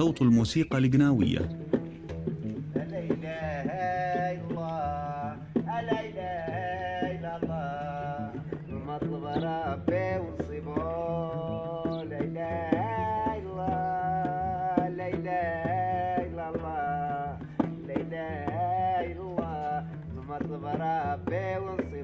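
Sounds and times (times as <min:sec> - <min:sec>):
man chanting: 0:00.0 - 0:01.6.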